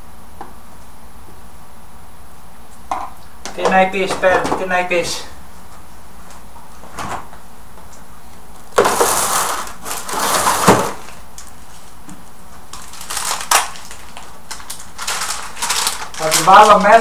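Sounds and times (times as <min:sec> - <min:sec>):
rustling and crackling packaging: 0:08.3 - 0:17.0.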